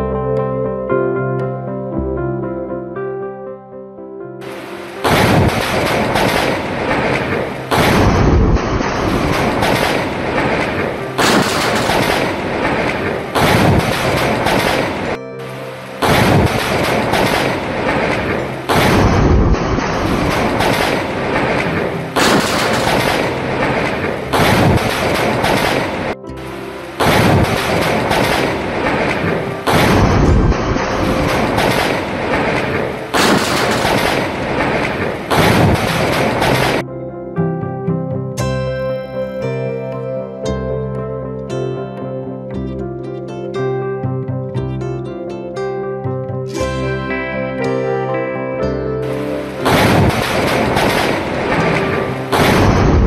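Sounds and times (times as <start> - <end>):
loud thunder cracks: 5.0 - 15.2, 16.0 - 26.2, 27.0 - 36.8, 49.6 - 53.0
thunder rumble: 5.0 - 15.2, 16.0 - 36.8, 49.6 - 53.0.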